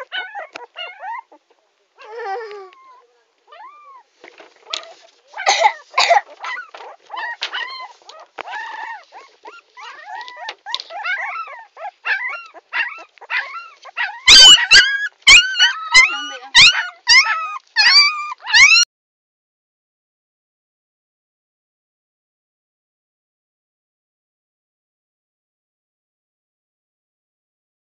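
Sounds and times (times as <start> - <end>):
puppy whining and yelping: 0.0 - 18.9.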